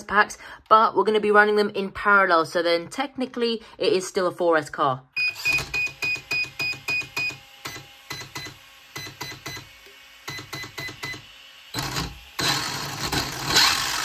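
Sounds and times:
electric motor whirring: 5.4s - 14.0s.

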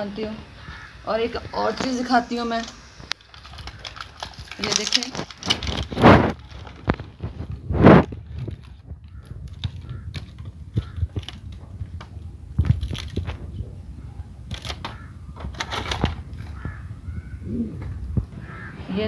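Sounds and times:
packaging rustling and crinkling: 2.6s - 16.9s.

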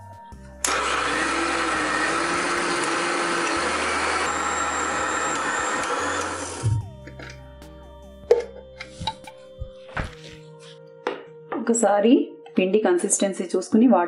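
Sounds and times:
mixer grinder running: 0.6s - 6.9s.

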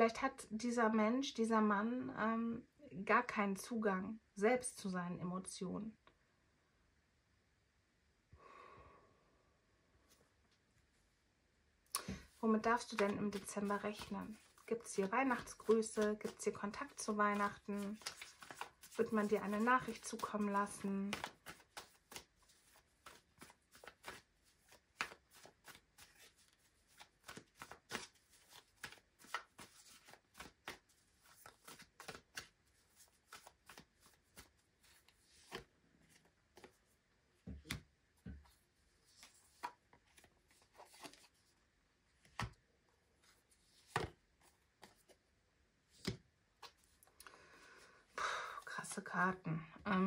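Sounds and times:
cards being shuffled: 12.0s - 36.9s, 37.5s - 41.4s, 42.2s - 42.6s, 43.2s - 45.2s.

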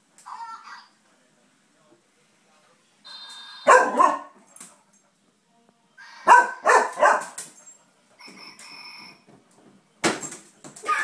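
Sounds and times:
dog barking: 3.6s - 4.4s, 6.2s - 7.4s.

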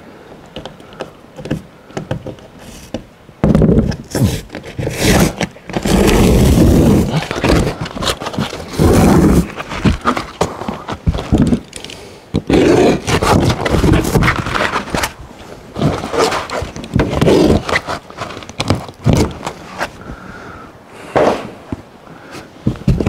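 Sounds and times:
roofing membrane tearing: 3.6s - 11.7s, 12.4s - 19.9s.

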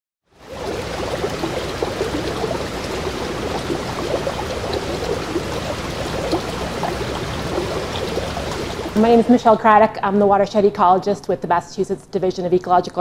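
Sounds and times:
stream water rushing and gurgling: 0.4s - 9.3s.

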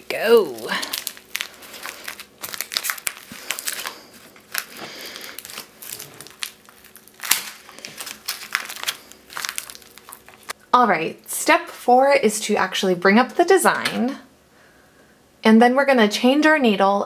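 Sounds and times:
fabric crinkling: 0.1s - 10.6s.

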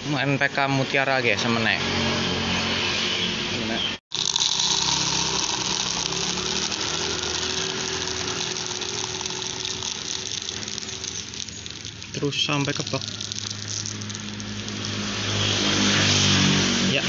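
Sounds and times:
granules pouring into plastic cup: 4.1s - 15.4s.

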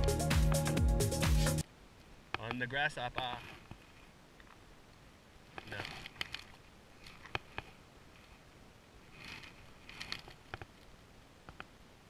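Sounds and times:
soft rustling: 2.3s - 11.7s.

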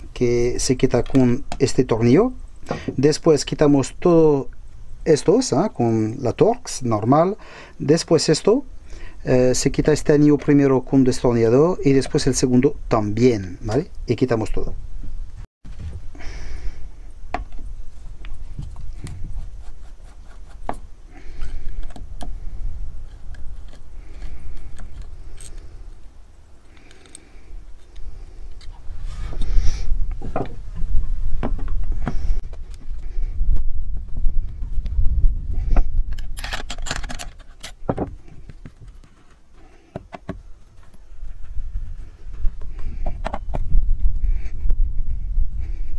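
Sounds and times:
screwdriver scraping: 18.8s - 22.3s, 23.0s - 29.6s
steady low rumble: 27.4s - 36.7s
metal tools clinking and scraping: 36.2s - 37.9s.

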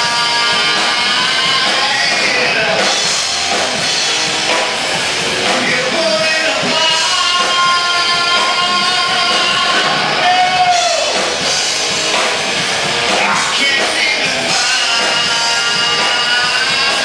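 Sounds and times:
man singing amplified: 0.0s - 3.4s, 5.4s - 11.4s, 13.1s - 17.0s
drum kit: 0.0s - 17.0s
electric guitar: 0.0s - 17.0s.

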